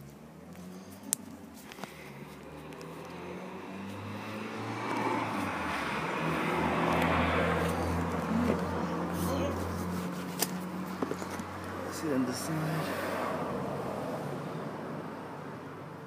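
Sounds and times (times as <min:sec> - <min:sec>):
vehicle engine running: 0:00.0 - 0:12.8.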